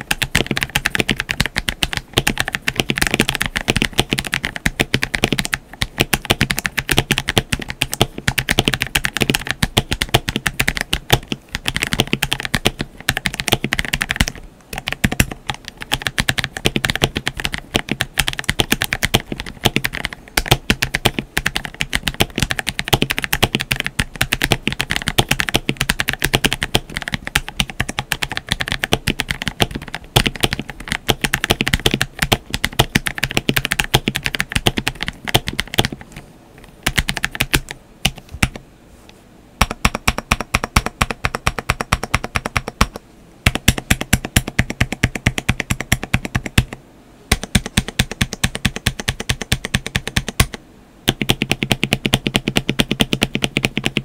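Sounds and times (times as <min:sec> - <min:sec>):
fast typing on mechanical keyboard: 0:00.0 - 0:38.6, 0:39.6 - 0:54.0.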